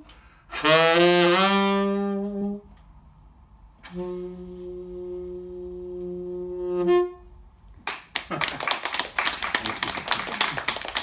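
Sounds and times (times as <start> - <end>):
tenor saxophone long note: 0.5 - 2.7, 3.8 - 7.4
audience applauding: 7.9 - 11.0.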